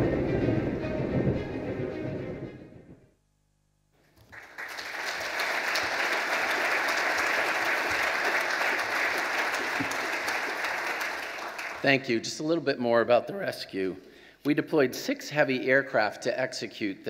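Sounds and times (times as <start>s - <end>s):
video soundtrack: 0.0s - 3.0s
audience applauding: 4.2s - 11.9s.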